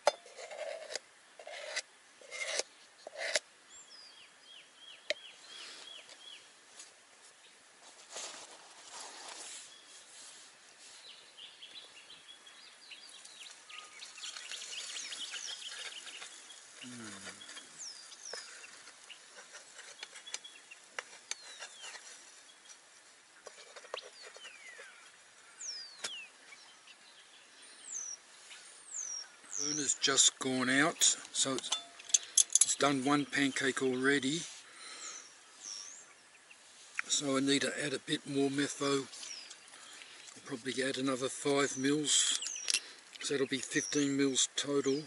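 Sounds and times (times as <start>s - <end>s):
faint background noise: 0.0s - 45.0s
birds whistling: 11.4s - 19.2s, 23.8s - 30.1s, 42.1s - 44.2s.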